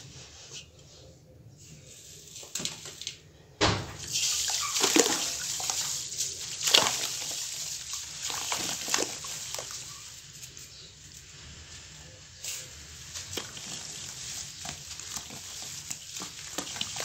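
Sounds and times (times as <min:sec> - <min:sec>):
powder poured into water splashing: 0:04.0 - 0:10.0, 0:13.0 - 0:17.0.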